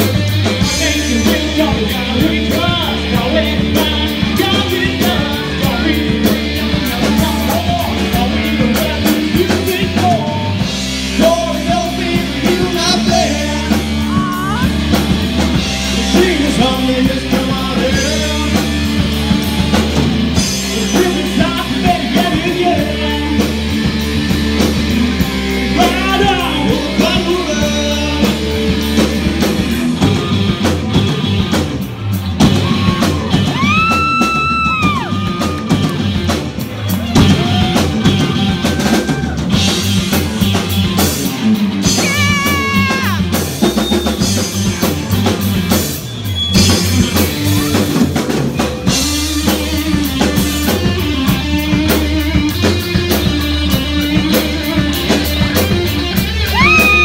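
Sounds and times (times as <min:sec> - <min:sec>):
sung vocals: 0:00.0 - 0:15.0, 0:15.6 - 0:30.6, 0:41.8 - 0:44.0
live rock band playing: 0:00.0 - 0:57.0.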